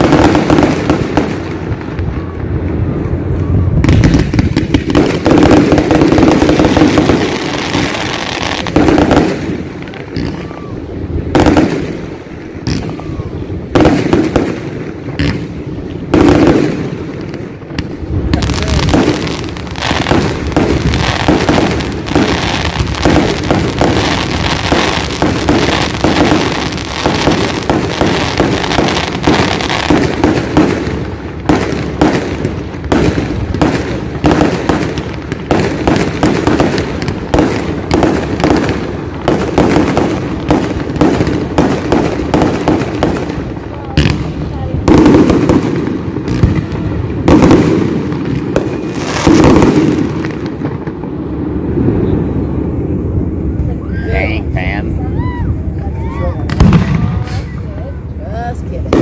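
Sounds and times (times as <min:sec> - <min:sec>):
fireworks bangs and crackling: 0:00.0 - 0:59.0
loud firework bang: 0:56.4 - 0:57.6.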